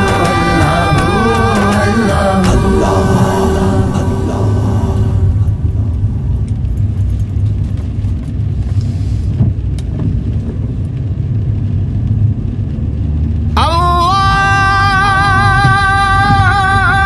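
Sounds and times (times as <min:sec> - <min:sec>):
sung melody: 0:00.0 - 0:05.9
car engine and tyres rumbling: 0:00.0 - 0:17.0.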